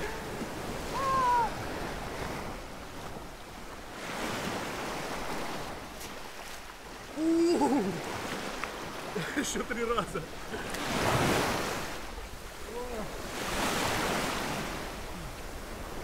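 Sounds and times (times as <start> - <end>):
high falling cry: 0.9 - 1.6
loud wavering yell: 0.9 - 1.6.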